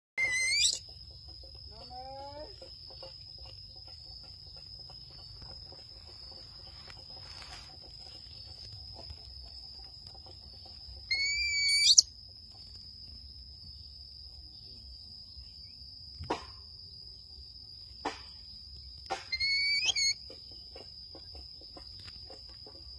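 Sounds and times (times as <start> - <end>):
high rising whistling call: 0.2 - 0.8, 11.1 - 12.0, 19.4 - 20.2.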